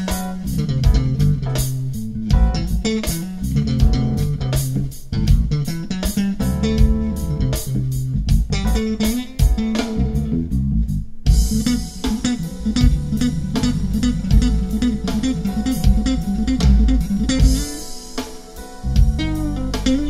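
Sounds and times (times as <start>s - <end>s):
bass-led track with drums on speaker: 0.0s - 20.0s.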